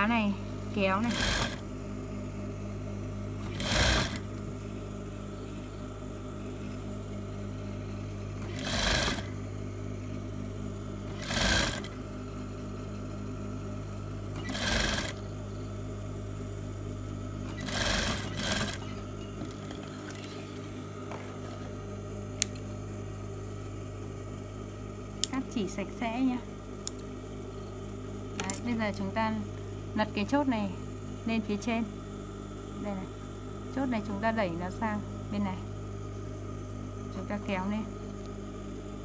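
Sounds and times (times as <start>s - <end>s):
steady low hum: 0.0s - 39.0s
sewing machine stitching: 1.0s - 1.6s, 3.4s - 4.3s, 8.4s - 9.4s, 11.1s - 12.0s, 14.3s - 15.2s, 17.4s - 20.4s.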